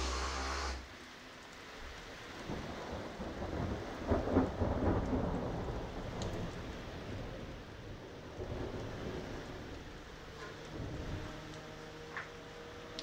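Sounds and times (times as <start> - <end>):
heavy rain: 0.0 - 13.0
thunder rumbling: 2.4 - 11.6.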